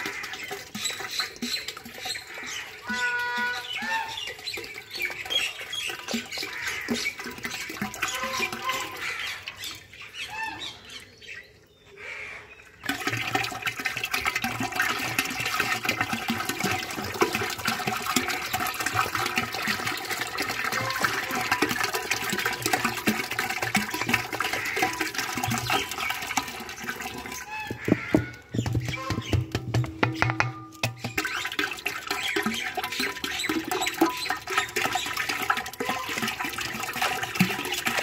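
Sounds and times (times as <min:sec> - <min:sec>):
liquid pouring and splashing: 0:00.0 - 0:10.3, 0:12.8 - 0:38.0
birds chirping: 0:00.3 - 0:12.9, 0:24.6 - 0:35.3.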